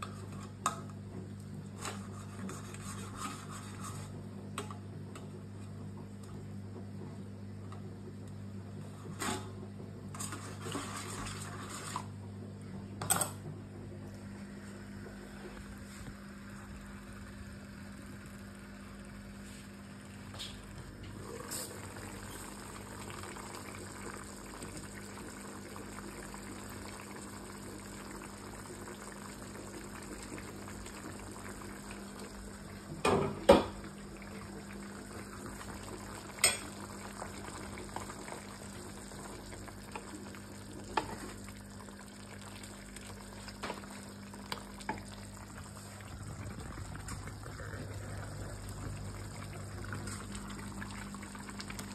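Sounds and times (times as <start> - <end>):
stew bubbling: 33.8 - 51.9
low hum: 44.9 - 51.9.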